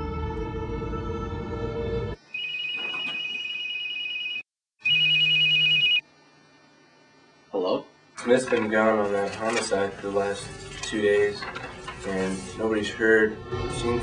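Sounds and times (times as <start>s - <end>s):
telephone ringing: 2.3s - 6.0s
suspense music with droning tones: 10.0s - 14.0s.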